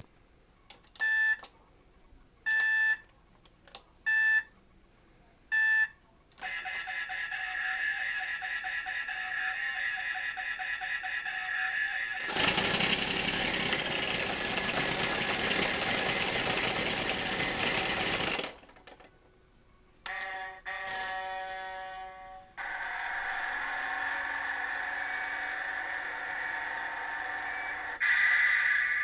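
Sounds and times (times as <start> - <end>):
toy electronic sound effects: 6.4 - 12.5, 20.1 - 29.0.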